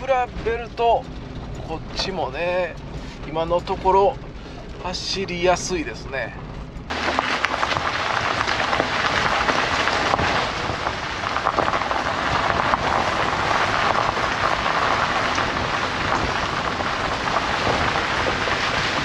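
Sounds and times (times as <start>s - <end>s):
tyre and road noise: 0.0s - 19.0s
crackles of gravel and water: 6.5s - 19.0s.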